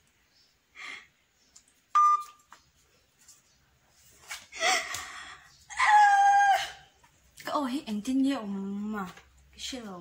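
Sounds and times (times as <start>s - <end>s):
woman laughing and shrieking: 5.7s - 6.9s.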